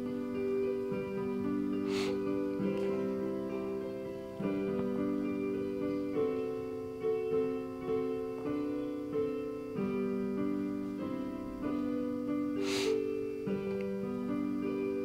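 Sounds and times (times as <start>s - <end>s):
piano playing slow chords: 0.0s - 15.0s.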